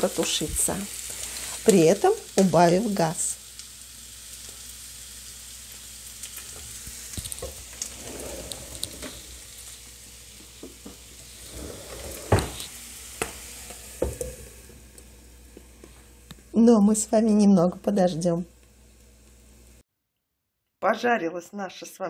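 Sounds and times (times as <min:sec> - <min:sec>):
vegetables sizzling in a pan: 0:00.0 - 0:19.8.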